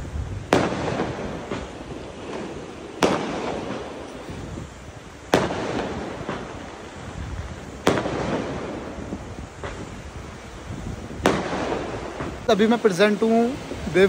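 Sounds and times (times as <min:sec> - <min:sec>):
firecracker bangs echoing: 0:00.0 - 0:14.0
faint firework pops: 0:00.5 - 0:04.4, 0:05.3 - 0:06.8, 0:07.8 - 0:09.0, 0:09.6 - 0:10.0, 0:11.1 - 0:12.5.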